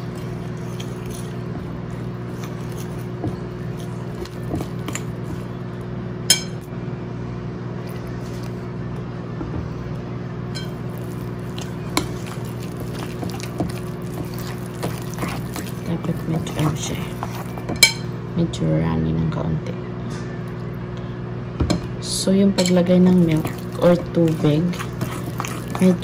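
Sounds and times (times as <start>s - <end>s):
spoon stirring thick batter: 0.0s - 5.8s, 10.6s - 18.0s, 22.6s - 26.0s
steady low hum: 0.0s - 26.0s
spoon clinking on glass bowl: 10.6s - 10.8s.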